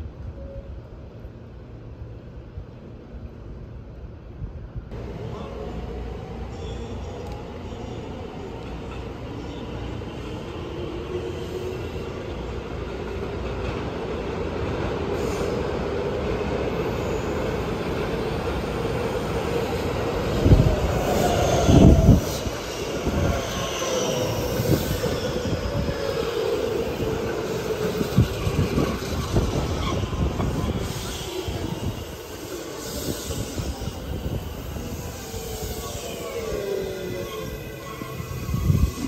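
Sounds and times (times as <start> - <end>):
electric train arriving: 4.9 - 39.0
high brake squeal: 6.5 - 8.2, 16.8 - 17.7, 20.4 - 39.0.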